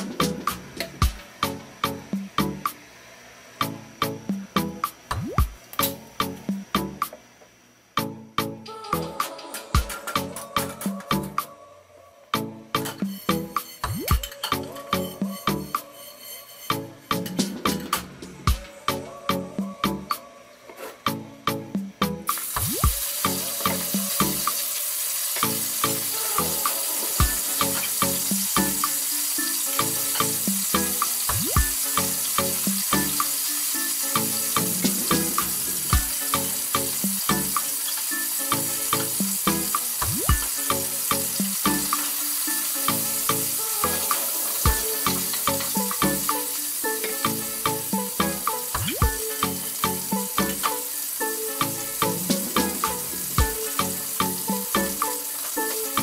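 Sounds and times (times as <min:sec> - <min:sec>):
background music with beat: 0:00.0 - 0:02.8, 0:03.6 - 0:07.2, 0:08.0 - 0:11.7, 0:12.3 - 0:56.0
chicken sizzling in hot oil: 0:22.3 - 0:56.0.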